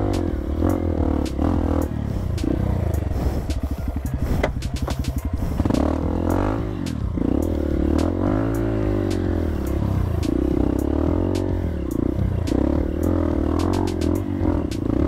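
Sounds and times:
dirt bike engine revving: 0.0 - 15.0
sharp clicks and clatter: 3.4 - 8.1.

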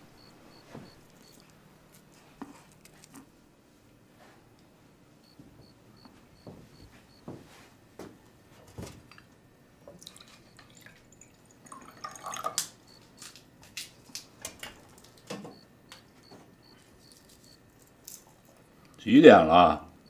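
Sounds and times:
water pouring into a glass: 10.0 - 12.7.

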